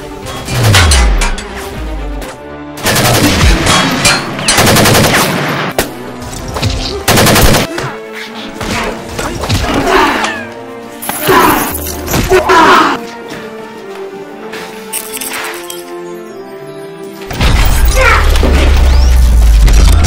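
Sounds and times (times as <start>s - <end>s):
background music: 0.0s - 20.0s
automatic gunfire bursts: 7.1s - 7.7s.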